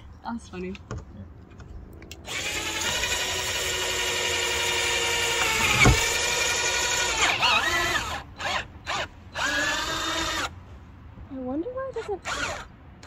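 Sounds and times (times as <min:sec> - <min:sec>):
drill whining through metal: 0:02.2 - 0:10.5, 0:12.0 - 0:12.7.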